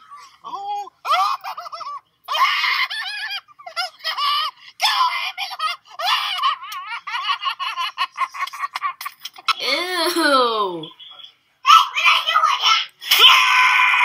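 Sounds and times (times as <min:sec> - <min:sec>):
child squealing and laughing: 0:00.1 - 0:07.4, 0:09.4 - 0:10.8.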